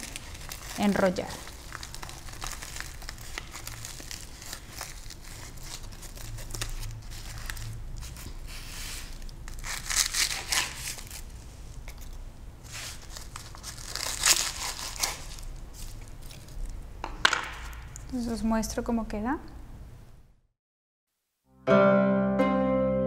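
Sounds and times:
seaweed sheets crinkling and tearing: 0.0s - 16.8s.

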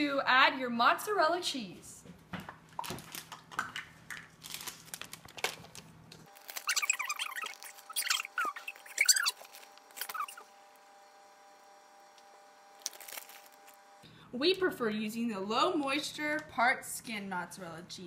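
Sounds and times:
plastic bag crinkling: 2.7s - 10.4s, 12.8s - 13.8s.

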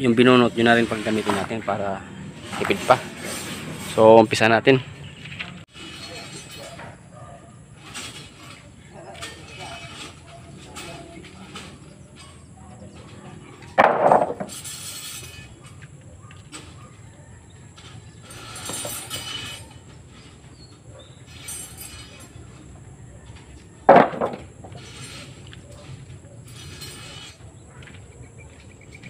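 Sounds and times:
wooden lumber clattering impacts: 7.8s - 14.8s, 23.3s - 26.2s.

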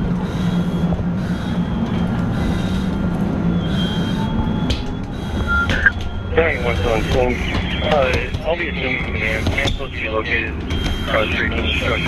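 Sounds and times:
engine rumbling: 0.0s - 12.0s
faint high whine: 5.2s - 7.8s.

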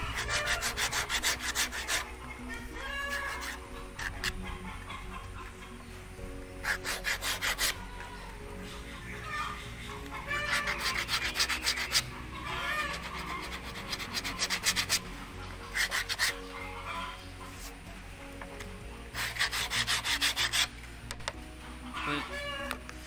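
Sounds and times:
sandpaper rasping on wood: 0.0s - 2.2s, 2.9s - 4.4s, 6.6s - 7.8s, 10.2s - 16.5s, 19.1s - 20.7s
chicken clucking: 1.6s - 6.0s, 7.6s - 19.1s.

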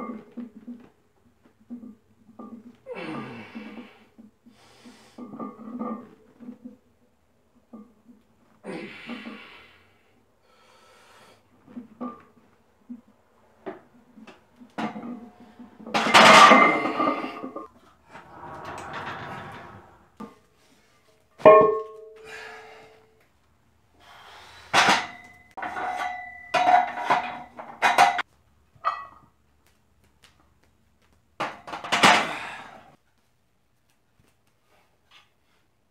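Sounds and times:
weight plates clanking on rack: 16.0s - 17.6s.

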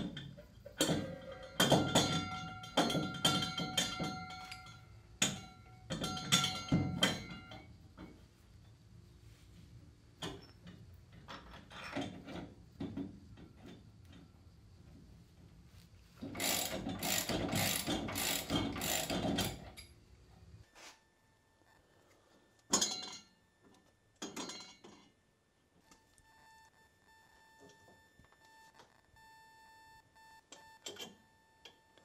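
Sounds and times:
hand ratchet clicking: 16.3s - 19.9s.

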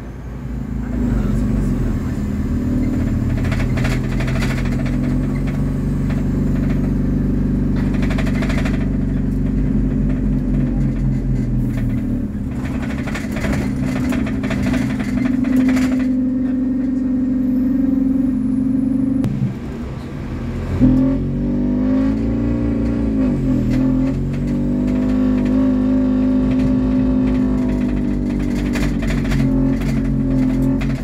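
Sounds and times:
bus diesel engine running: 0.0s - 31.0s
rattling and road noise: 0.0s - 31.0s.

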